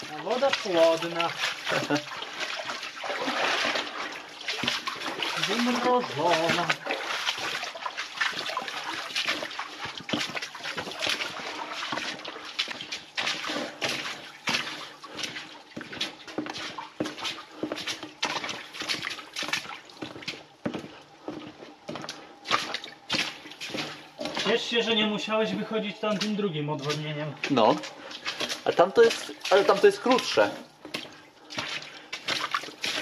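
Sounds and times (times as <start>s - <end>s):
footsteps splashing through water: 0.0s - 33.0s.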